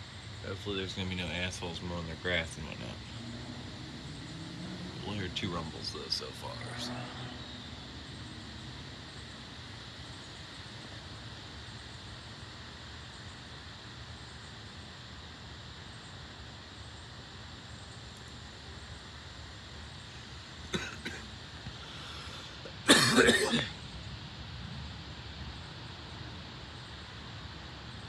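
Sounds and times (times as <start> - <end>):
steady outdoor hiss: 0.0 - 28.0
cough-like burst: 20.7 - 21.3, 22.6 - 23.8.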